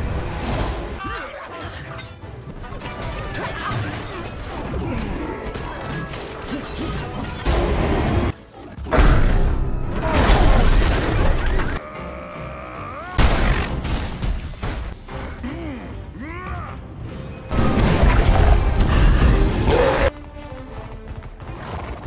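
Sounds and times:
dramatic movie music: 0.0s - 22.0s.

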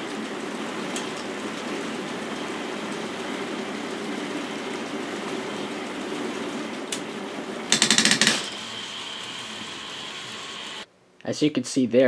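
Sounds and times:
rapid clicking burst: 7.7s - 10.8s.

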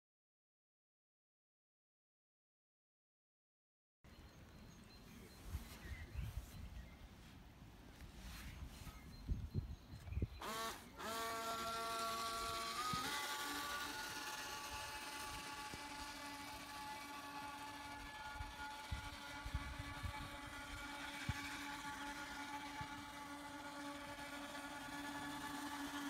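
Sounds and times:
electric motor whine: 8.9s - 26.0s.

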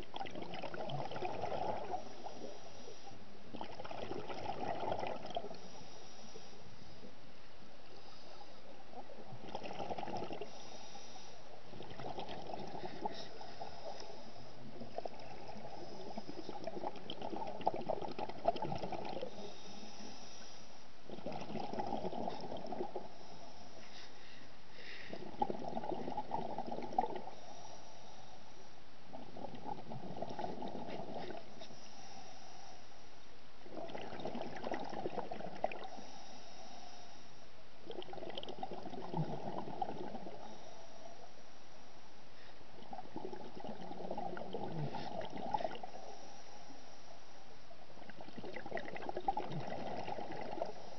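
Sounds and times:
regulator exhaled bubbles: 0.0s - 2.6s, 3.5s - 5.9s, 9.0s - 10.9s, 11.7s - 20.1s, 21.1s - 23.2s, 24.8s - 27.6s, 29.1s - 31.9s, 33.6s - 36.2s, 37.9s - 40.8s, 42.8s - 46.3s, 48.0s - 50.9s
steady underwater hiss: 0.0s - 50.9s.

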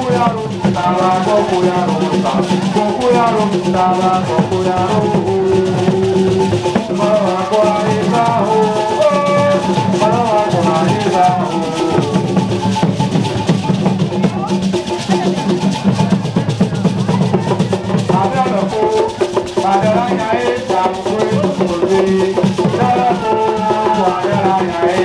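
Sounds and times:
drums and rattles beat: 0.0s - 25.0s
voices singing: 0.0s - 25.0s.

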